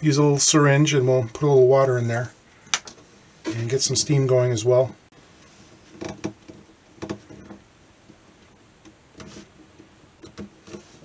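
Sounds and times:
light clicks and knocks: 8.8s - 10.9s.

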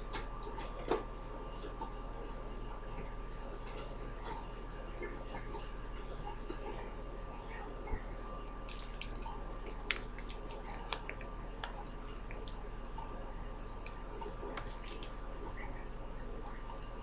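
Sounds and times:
microwave oven humming: 0.0s - 17.0s
popcorn popping: 8.6s - 13.0s.

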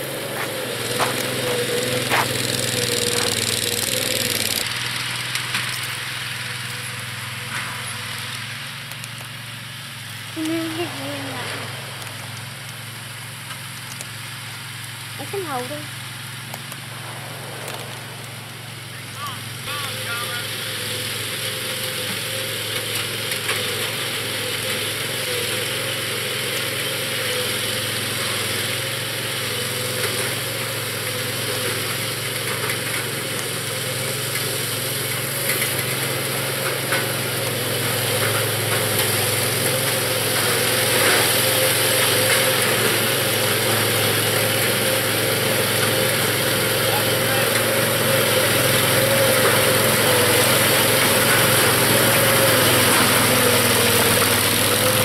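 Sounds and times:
toy tank engine running: 0.0s - 7.4s, 18.9s - 55.0s.

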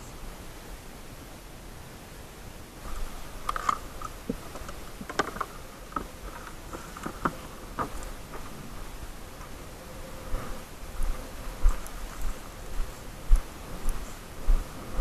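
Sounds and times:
rustling: 2.8s - 13.1s
gear clicks and knocks: 3.4s - 8.4s.

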